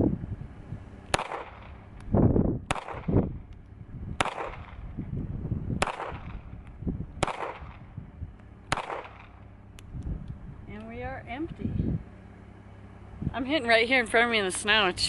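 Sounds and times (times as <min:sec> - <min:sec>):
pistol shots: 0:01.1 - 0:01.8, 0:02.7 - 0:03.2, 0:04.2 - 0:05.0, 0:05.8 - 0:07.9, 0:08.6 - 0:09.6.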